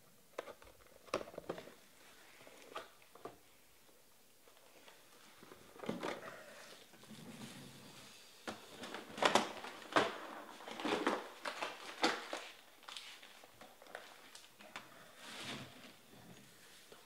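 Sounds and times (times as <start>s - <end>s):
foil wrappers crinkling: 8.7s - 14.6s.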